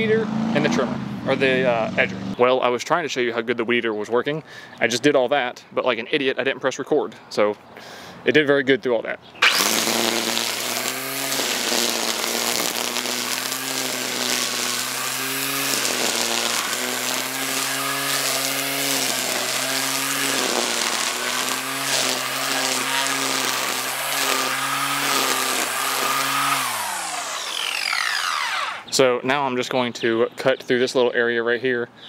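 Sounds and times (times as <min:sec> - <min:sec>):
string trimmer motor whining: 0:09.4 - 0:29.0
trimmer line cutting grass: 0:09.4 - 0:29.0.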